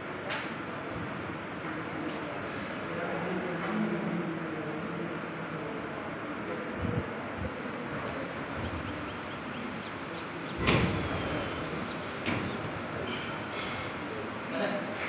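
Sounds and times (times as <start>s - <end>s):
large hall background noise: 0.0s - 15.0s
loud echoing thud: 10.5s - 13.0s.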